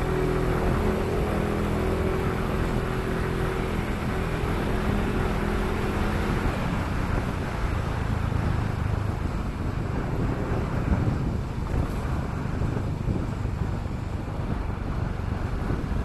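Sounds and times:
motor scooter engine: 0:00.0 - 0:08.5
wind noise on microphone: 0:00.0 - 0:16.0.

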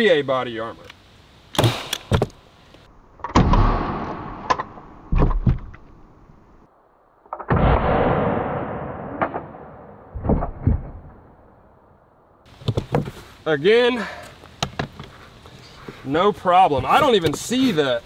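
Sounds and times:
nail gun bang: 0:01.6 - 0:02.3, 0:03.3 - 0:05.7.

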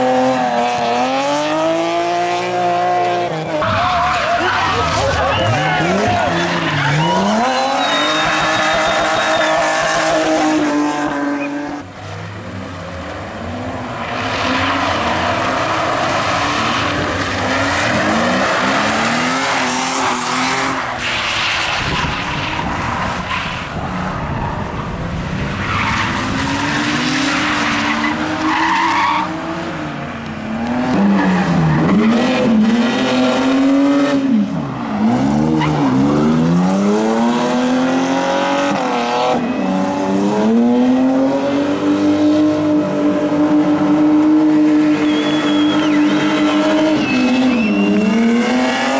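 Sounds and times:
car engines revving: 0:00.0 - 0:48.9
tyres squealing on tarmac: 0:03.5 - 0:10.2, 0:25.6 - 0:29.4, 0:44.9 - 0:48.4.

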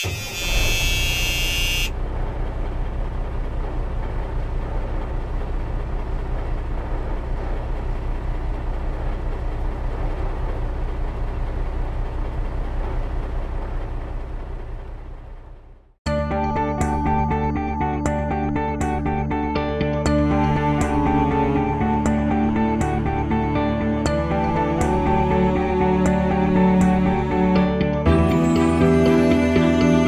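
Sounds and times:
high electronic tone: 0:00.0 - 0:02.0
engine running with fast pulse: 0:00.0 - 0:16.0.

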